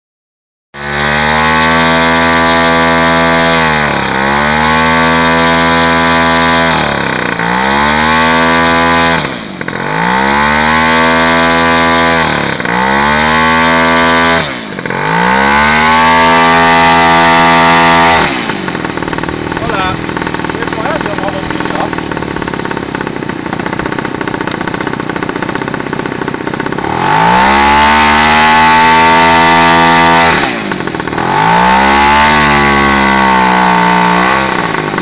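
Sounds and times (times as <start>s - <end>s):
model airplane engine revving: 0.8s - 35.0s.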